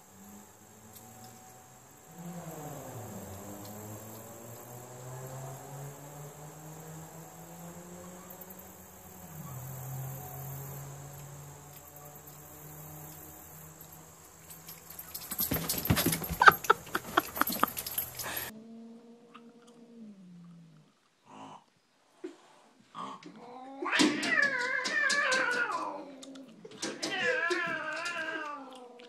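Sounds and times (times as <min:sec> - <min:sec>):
dogs play-fighting: 0:14.7 - 0:18.5.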